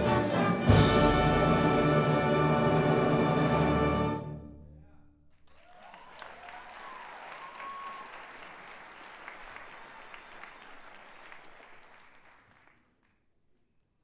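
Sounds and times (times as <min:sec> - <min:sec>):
audience applauding: 0:05.4 - 0:13.2.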